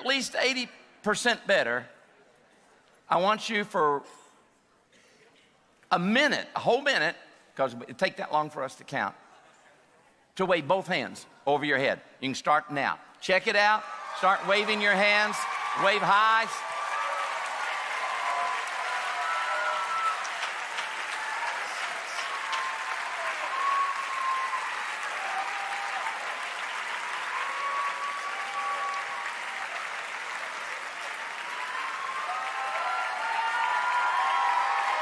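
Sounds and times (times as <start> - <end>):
whoops and shouts: 13.8 - 29.9, 31.4 - 35.0
crowd applauding: 13.9 - 35.0.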